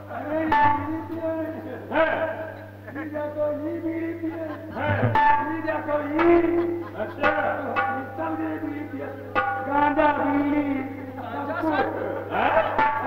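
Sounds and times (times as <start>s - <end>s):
held melodic tones: 0.0s - 1.9s, 2.5s - 13.0s
low steady hum: 0.0s - 13.0s
hand drums struck: 5.0s - 11.2s.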